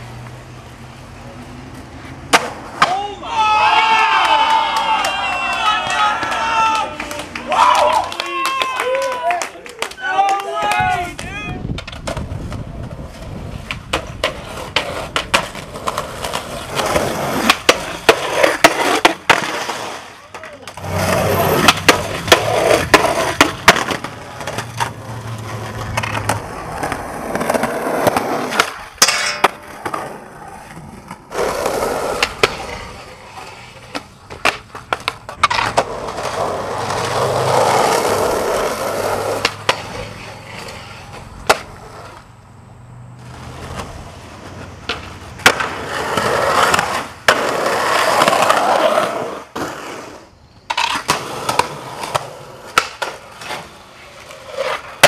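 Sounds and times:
skateboards rolling on concrete: 0:00.0 - 0:55.0
skateboard popping and landing: 0:01.4 - 0:42.3, 0:43.2 - 0:55.0
skateboard sliding on metal rail: 0:11.8 - 0:42.3, 0:43.2 - 0:55.0.

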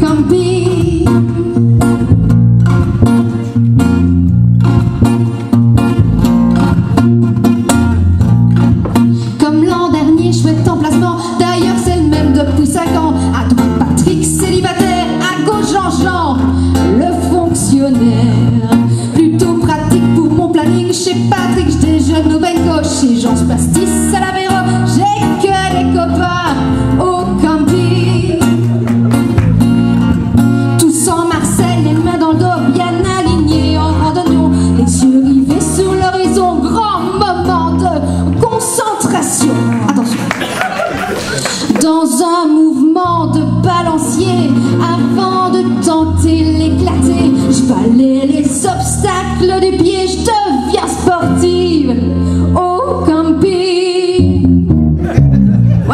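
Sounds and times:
woman singing into a microphone: 0:00.0 - 0:02.2, 0:08.9 - 0:28.8, 0:30.6 - 0:40.2, 0:41.6 - 0:54.5
acoustic guitar: 0:00.0 - 0:55.9
bass guitar: 0:00.0 - 0:55.9
electric guitar: 0:00.0 - 0:55.9.

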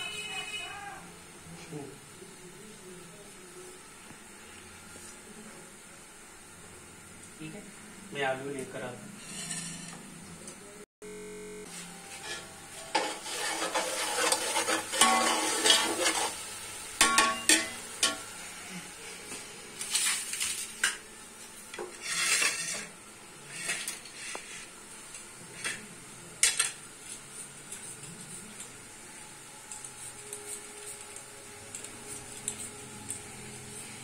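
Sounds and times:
metal spoon scraping in pot: 0:09.2 - 0:10.0, 0:12.1 - 0:16.4, 0:21.9 - 0:24.7.

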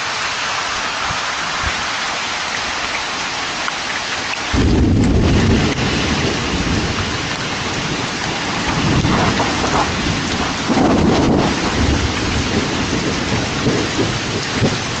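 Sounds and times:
heavy rain: 0:00.0 - 0:15.0
rolling thunder: 0:04.5 - 0:15.0.

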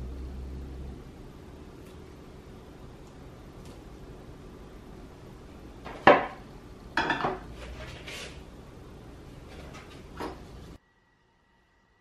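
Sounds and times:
metal pan clattering on table: 0:07.0 - 0:07.5.

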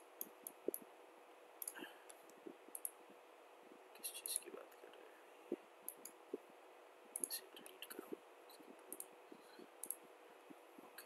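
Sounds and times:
faint steady hum: 0:00.0 - 0:11.0
computer mouse clicking: 0:00.2 - 0:00.9, 0:01.6 - 0:03.0, 0:05.9 - 0:06.2, 0:07.2 - 0:10.0.

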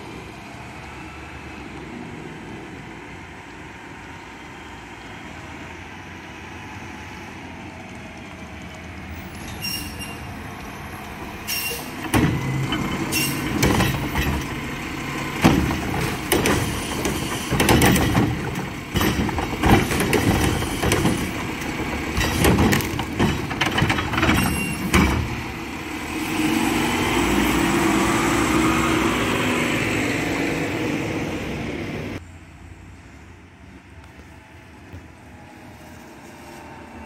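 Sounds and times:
truck engine and hydraulics: 0:00.0 - 0:37.0
trash cart banging and clattering: 0:11.4 - 0:25.7.

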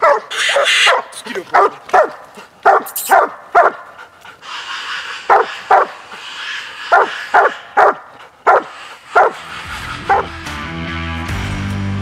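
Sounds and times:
dog barking: 0:00.0 - 0:03.9, 0:04.8 - 0:06.2, 0:06.8 - 0:09.4, 0:10.1 - 0:10.3
background music: 0:09.4 - 0:12.0.

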